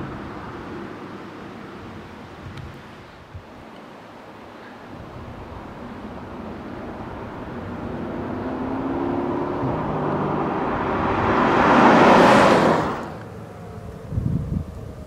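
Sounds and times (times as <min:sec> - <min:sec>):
car passing by: 0:05.0 - 0:15.0.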